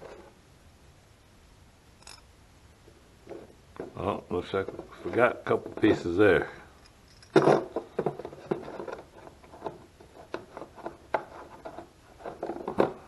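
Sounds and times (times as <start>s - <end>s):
small metal parts clicking and knocking: 2.0s - 2.2s, 6.8s - 10.4s.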